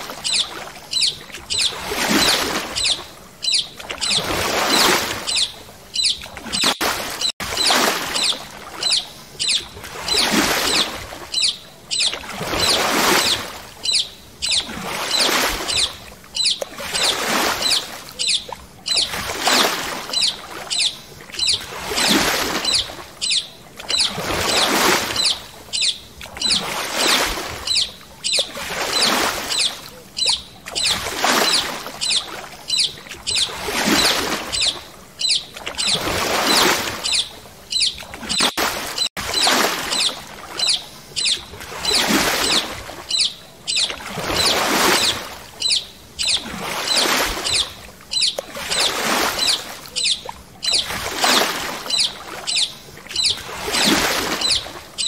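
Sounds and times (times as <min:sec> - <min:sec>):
paddle strokes splashing water: 0:00.0 - 0:55.0.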